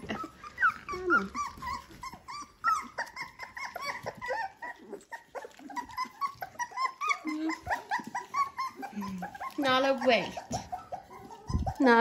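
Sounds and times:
puppies squeaking and whining: 0.0 - 12.0.

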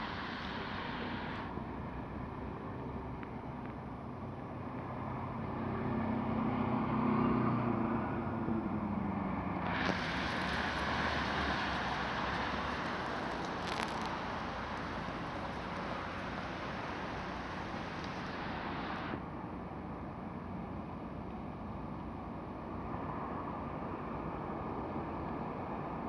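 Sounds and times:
hissing noise: 0.0 - 1.5, 9.6 - 19.2
tram rumble: 0.0 - 6.0, 7.7 - 26.0.

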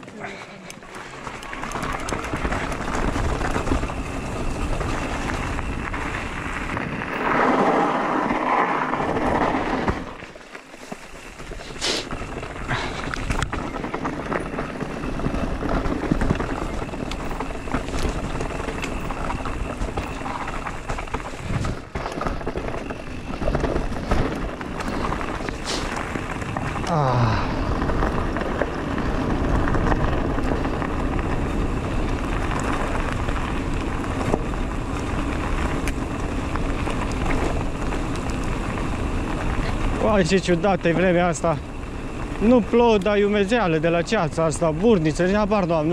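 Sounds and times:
bike tyres and frame rattling: 0.0 - 45.9
wind buffeting microphone: 1.0 - 10.2, 11.4 - 45.9.

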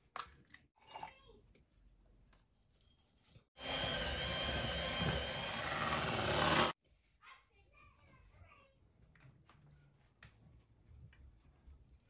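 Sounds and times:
electric hand mixer whining: 3.6 - 6.8.

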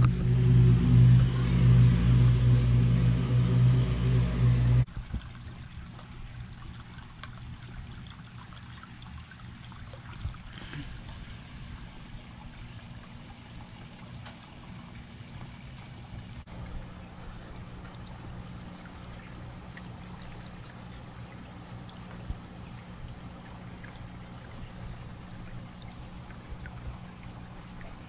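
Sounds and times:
loud low hum: 0.0 - 6.4
water trickling into pond: 4.8 - 28.0.

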